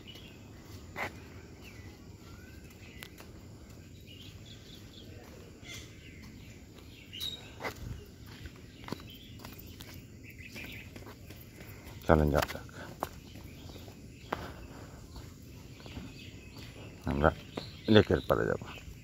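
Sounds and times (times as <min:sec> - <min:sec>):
faint bird chirps: 0:00.0 - 0:19.0
soft thumps of footsteps: 0:00.0 - 0:19.0.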